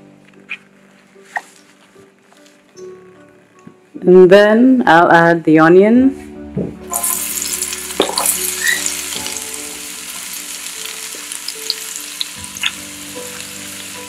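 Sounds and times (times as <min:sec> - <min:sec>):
oil crackling and popping: 0:06.9 - 0:14.0
onion sizzling in oil: 0:06.9 - 0:14.0.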